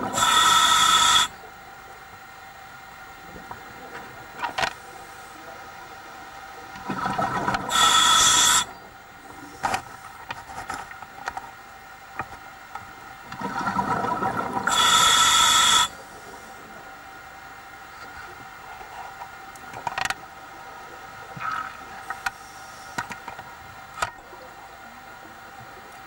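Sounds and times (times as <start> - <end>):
diver breathing through regulator: 0.0 - 1.4, 7.7 - 8.7, 14.6 - 16.4
bubbling rumble: 6.8 - 7.8, 13.3 - 14.8.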